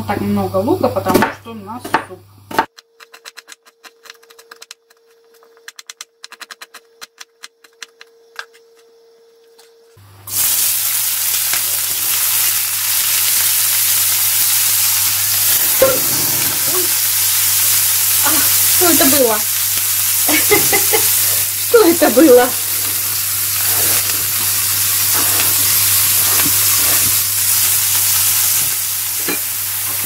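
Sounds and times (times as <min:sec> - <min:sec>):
onion sizzling in hot oil: 0:10.0 - 0:30.0.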